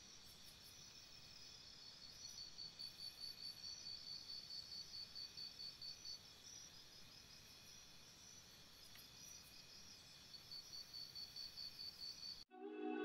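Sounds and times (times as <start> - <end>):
insects chirping: 0.0 - 12.4.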